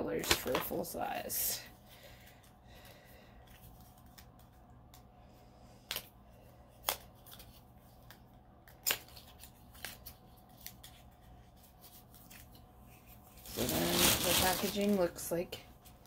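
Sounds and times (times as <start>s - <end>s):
package handling noises: 0.1s - 0.9s, 5.8s - 16.0s.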